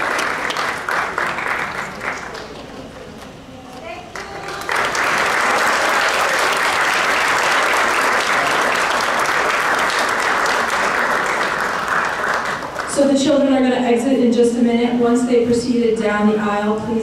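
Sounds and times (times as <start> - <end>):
audience applauding: 0.0 - 3.2, 4.1 - 13.0.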